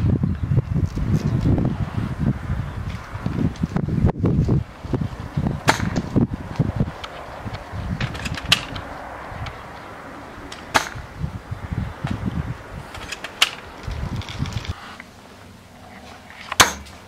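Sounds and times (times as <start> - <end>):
low rumble: 0.0 - 16.4
airsoft gun shots: 5.6 - 6.0, 10.7 - 11.0, 16.6 - 16.9.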